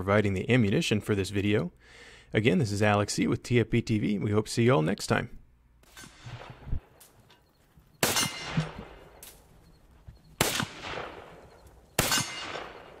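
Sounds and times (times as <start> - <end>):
rifle shots with echo: 8.0 - 9.4, 10.4 - 13.0.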